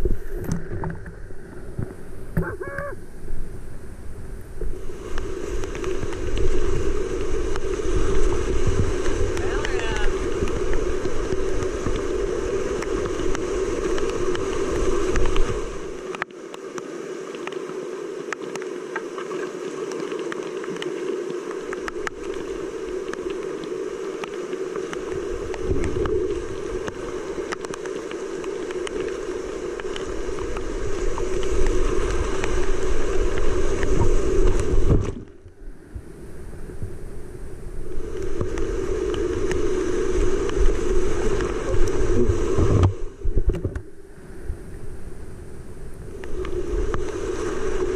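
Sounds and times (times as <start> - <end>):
whitewater rapids rushing: 5.4 - 18.9.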